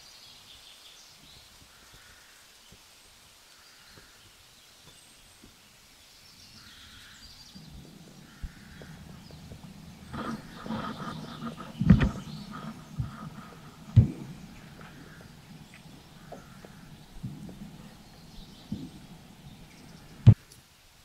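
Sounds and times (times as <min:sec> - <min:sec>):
air rifle shots: 0:07.6 - 0:20.4
faint knocks: 0:07.6 - 0:20.4.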